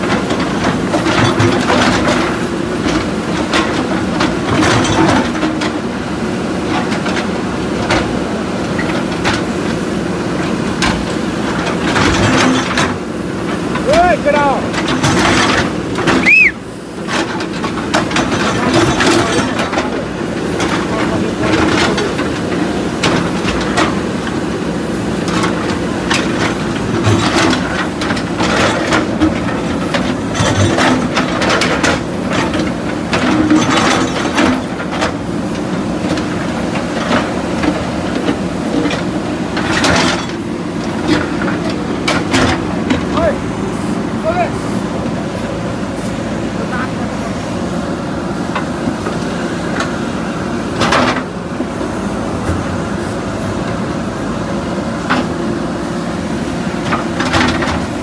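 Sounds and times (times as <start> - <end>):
diesel engines under load: 0.0 - 58.0
high squeal: 16.2 - 16.6.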